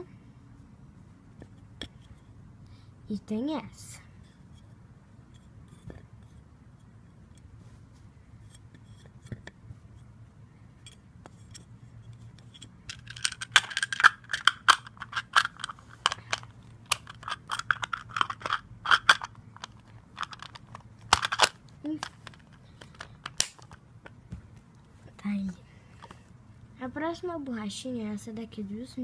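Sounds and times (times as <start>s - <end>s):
plastic case rattling and clicking: 12.9s - 23.8s.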